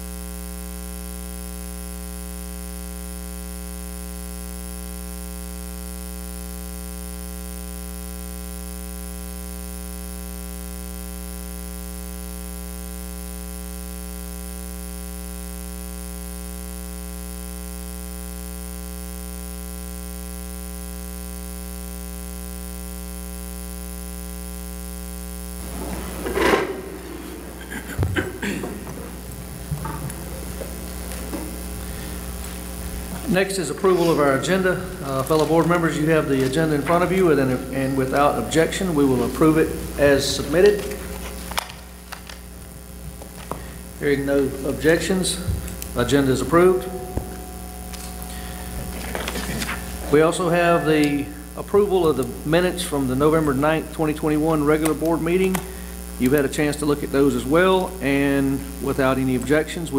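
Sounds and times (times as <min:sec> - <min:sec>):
electrical mains hum: 0:00.0 - 0:59.9
chairs clattering: 0:25.6 - 0:37.3, 0:44.4 - 0:50.2.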